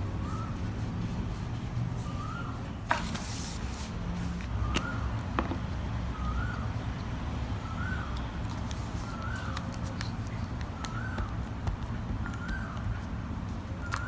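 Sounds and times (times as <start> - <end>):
paper rustle: 0.3 - 5.0, 8.4 - 14.0
bird whistling call: 2.0 - 2.8, 6.1 - 6.7, 7.6 - 8.2, 12.2 - 12.8.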